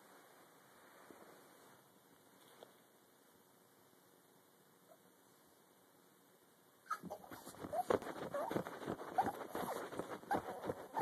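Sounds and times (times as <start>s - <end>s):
dog whining: 6.8s - 11.0s.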